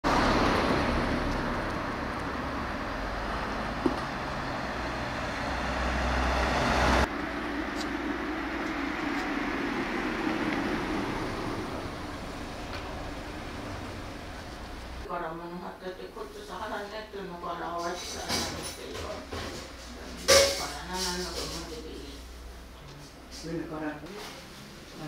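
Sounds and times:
vehicle passing: 0.0s - 15.1s
steady traffic hum: 0.0s - 25.0s.

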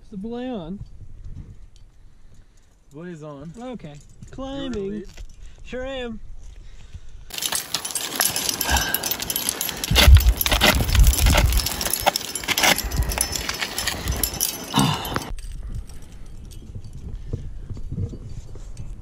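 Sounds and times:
climbing gear clinking: 7.3s - 19.0s.

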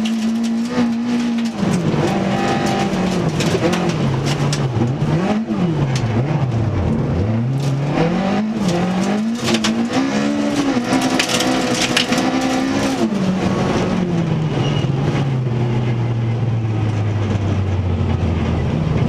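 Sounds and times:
clattering hits from road surface: 0.0s - 5.2s, 7.5s - 13.1s
rally car engine revving: 0.0s - 19.0s.

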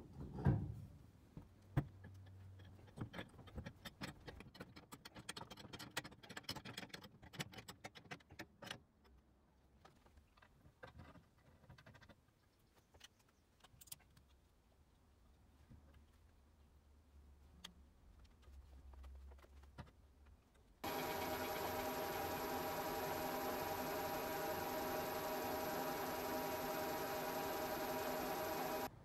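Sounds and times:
rapid small clicks and rattles: 1.9s - 9.2s, 9.8s - 14.5s.

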